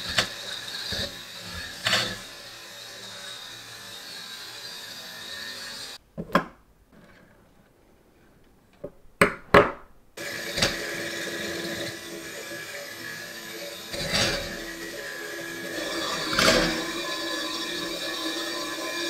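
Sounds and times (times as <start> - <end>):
toy train motor and gears whirring: 0.0 - 6.0, 10.2 - 19.0.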